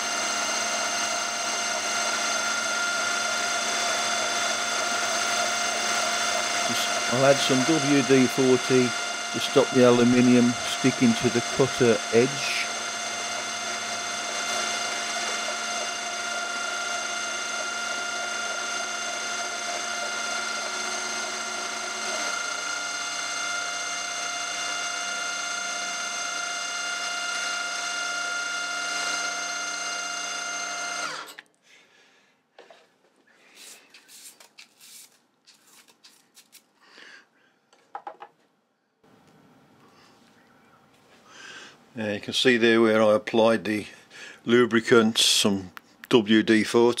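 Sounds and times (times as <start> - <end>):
metal cutting noise: 0.0 - 31.4
milling machine whine: 0.0 - 31.4.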